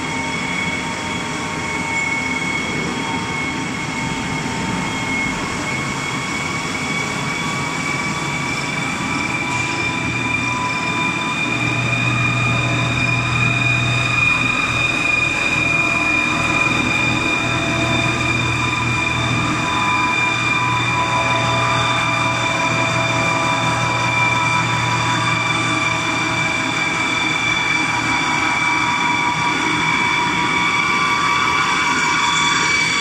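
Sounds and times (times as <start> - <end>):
machine high whine: 0.0 - 33.0
low hum: 9.4 - 28.0.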